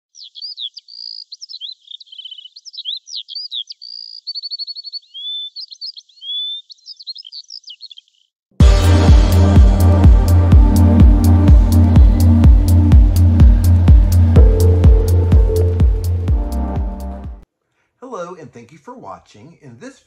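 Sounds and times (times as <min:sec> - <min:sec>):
songbird singing: 0:00.1 - 0:08.4
electronic music with heavy bass: 0:08.6 - 0:17.4.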